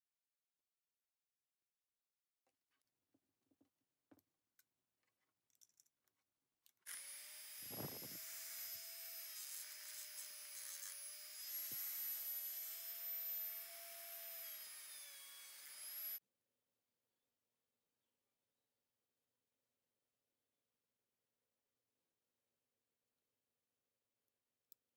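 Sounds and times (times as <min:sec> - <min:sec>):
rotary tool whining on metal: 0:06.9 - 0:16.2.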